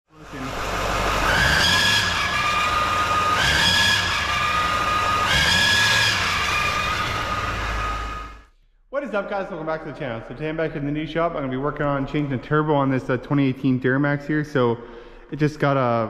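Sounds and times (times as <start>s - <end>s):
diesel engine revving: 0.1s - 8.5s
turbo whistle: 0.4s - 8.5s.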